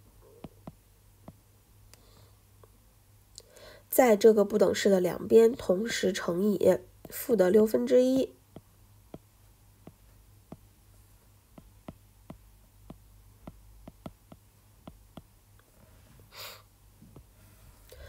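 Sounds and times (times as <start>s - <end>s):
low steady hum: 0.0s - 18.0s
stylus tapping on glass screen: 11.5s - 15.3s.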